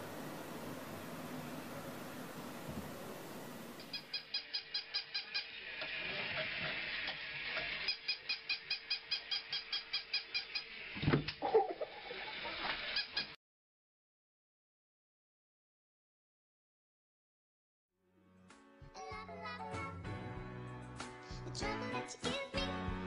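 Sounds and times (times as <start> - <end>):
animal high-pitched calls: 7.8 - 10.8.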